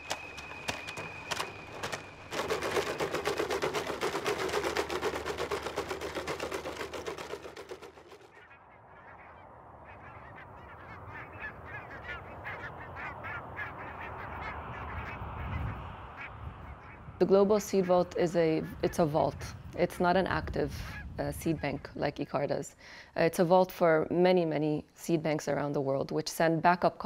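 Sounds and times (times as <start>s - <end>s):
rapid clatter of clicks: 0.0s - 8.4s
honking bird calls: 7.6s - 19.4s.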